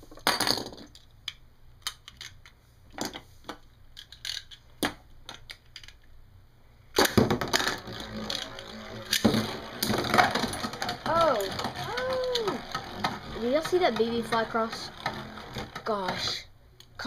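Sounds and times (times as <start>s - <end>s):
spinning top launched: 7.0s - 15.9s
spinning top rattling in plastic bowl: 7.2s - 16.5s.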